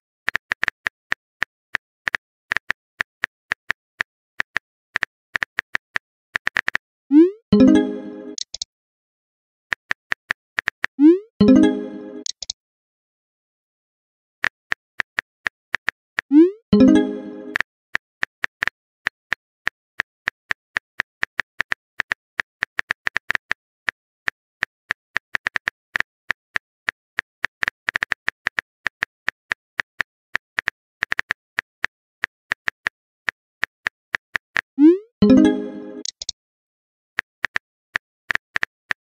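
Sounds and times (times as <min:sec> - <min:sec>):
rising pop message sound: 0:07.1 - 0:08.4, 0:11.0 - 0:12.3, 0:16.3 - 0:17.6, 0:34.8 - 0:36.2
phone keyboard typing clicks: 0:07.6 - 0:08.7, 0:11.4 - 0:12.6, 0:35.2 - 0:36.3.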